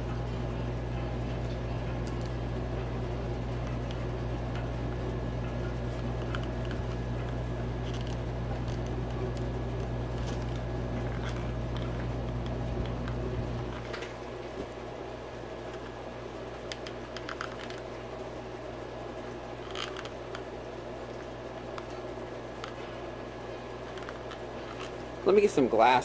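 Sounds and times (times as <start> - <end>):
steady low hum: 0.0 - 26.0
small clicks of plastic parts: 19.6 - 20.4.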